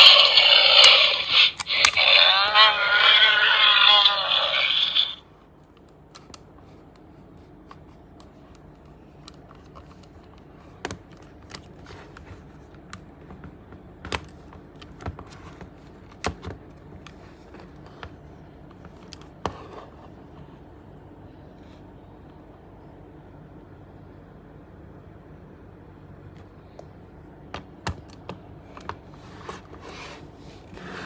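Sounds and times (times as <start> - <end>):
plastic toy rubbing: 0.0 - 5.2, 29.2 - 31.0.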